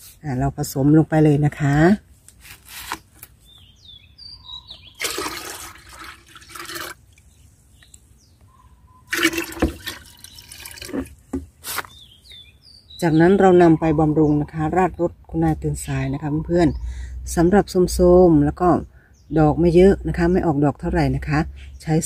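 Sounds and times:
faint bird chirps: 0:03.4 - 0:05.0, 0:07.3 - 0:10.8, 0:11.7 - 0:17.5
liquid pouring into watering can: 0:05.0 - 0:07.2, 0:09.1 - 0:11.2.

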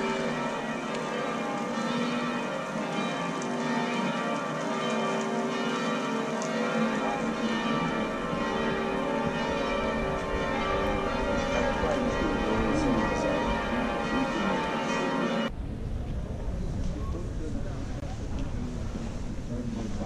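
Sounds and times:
church bells ringing: 0:00.0 - 0:15.5.

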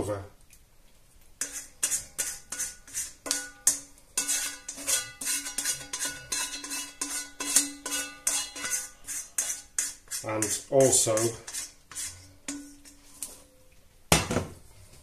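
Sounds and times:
spoon knocking on frying pan: 0:03.2 - 0:05.7.

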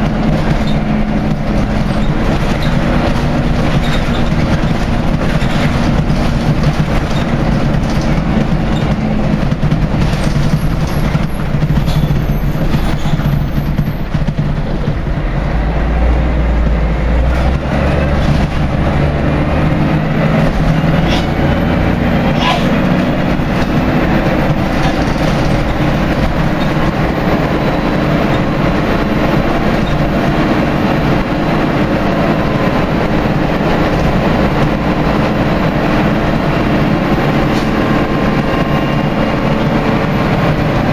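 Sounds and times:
diesel bus engine under load: 0:00.0 - 0:40.9
body and window rattle: 0:00.1 - 0:14.9, 0:22.4 - 0:30.1.

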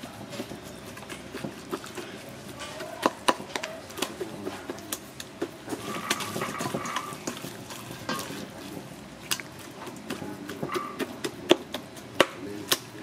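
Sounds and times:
wet squelching of raw meat: 0:00.3 - 0:13.0
metal fork scraping steel bowl: 0:05.8 - 0:08.5.

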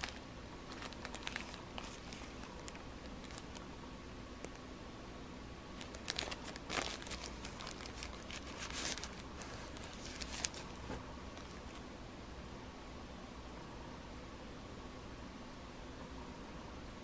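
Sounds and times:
plastic wrapping crinkling: 0:00.0 - 0:03.6, 0:05.8 - 0:11.8.

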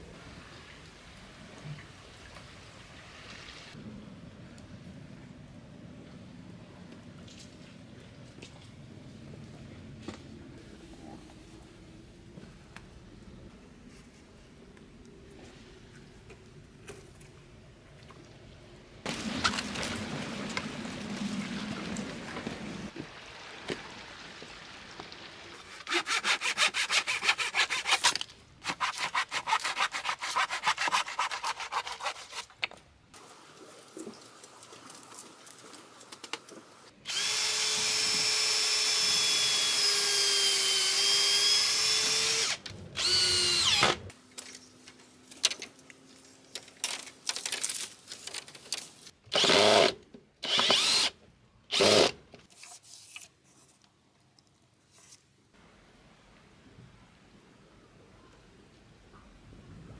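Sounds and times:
fast scratchy strokes: 0:25.8 - 0:32.5
cordless drill whining: 0:37.1 - 0:44.0, 0:49.4 - 0:51.1, 0:51.7 - 0:52.1.

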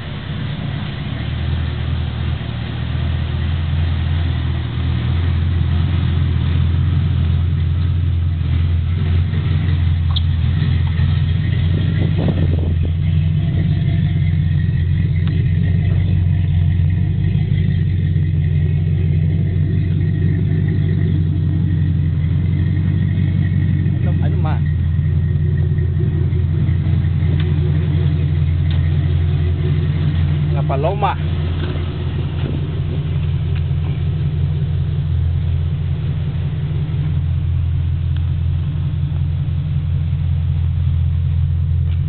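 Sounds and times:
pickup truck engine idling: 0:00.0 - 0:42.0.

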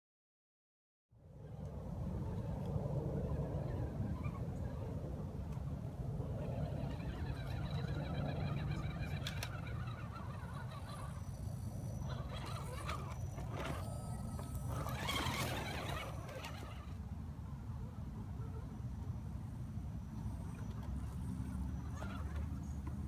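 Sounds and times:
electric motor and gears whining: 0:06.4 - 0:17.0.

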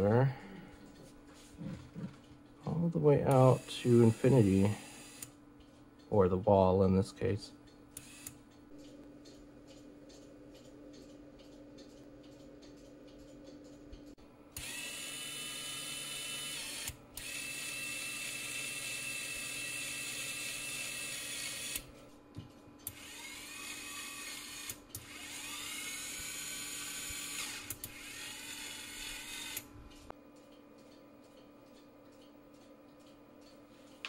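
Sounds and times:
small motor whine with gear tone: 0:03.5 - 0:05.4, 0:14.6 - 0:21.9, 0:22.8 - 0:29.7.

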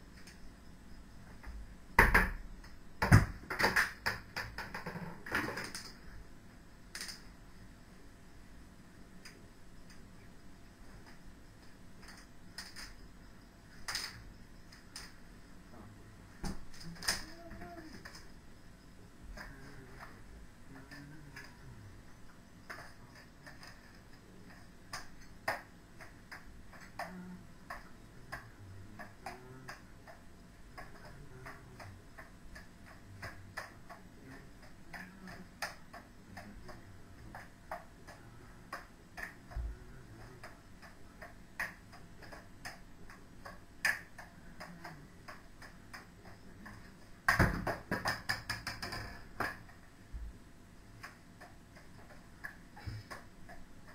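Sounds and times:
juggling clubs clicking into hands: 0:02.0 - 0:06.0, 0:11.0 - 0:13.0, 0:13.8 - 0:15.2, 0:22.7 - 0:49.9, 0:51.0 - 0:53.9.

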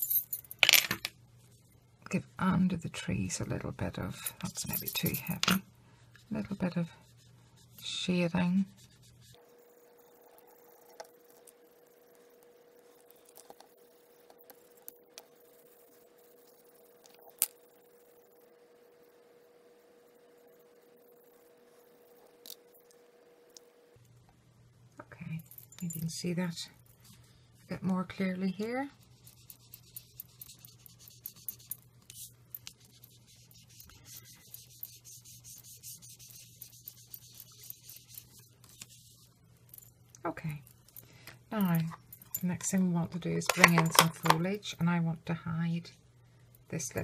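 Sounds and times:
steady low hum: 0:00.0 - 0:47.0
ink applicator scratching card: 0:06.2 - 0:18.1, 0:28.9 - 0:39.2.

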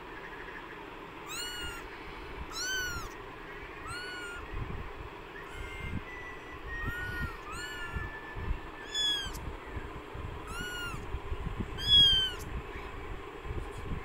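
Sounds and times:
kittens mewing: 0:01.2 - 0:08.2, 0:08.8 - 0:09.5, 0:10.4 - 0:12.6.

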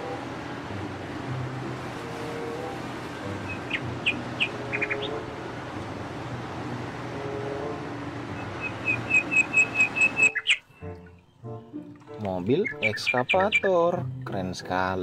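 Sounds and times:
excavator engine hum: 0:00.0 - 0:14.2
short bird chirps: 0:08.8 - 0:10.8.

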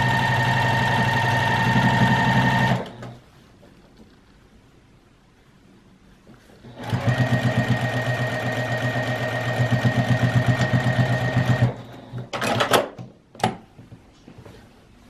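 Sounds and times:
sewing machine stitching: 0:00.0 - 0:03.2, 0:06.6 - 0:12.8.

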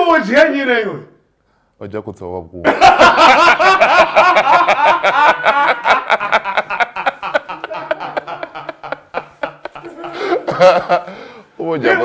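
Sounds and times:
men laughing heartily: 0:02.6 - 0:12.0.

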